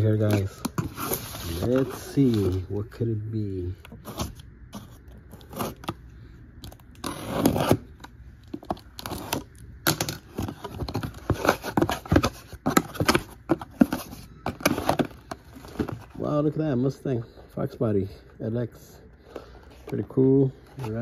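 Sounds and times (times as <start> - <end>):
box cutter slicing tape: 7.0 - 7.9.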